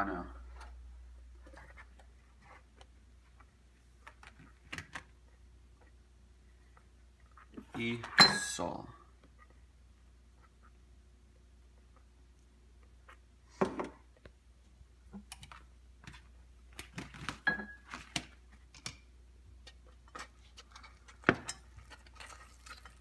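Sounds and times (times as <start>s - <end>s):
whisk stirring thick sauce: 21.7s - 23.0s.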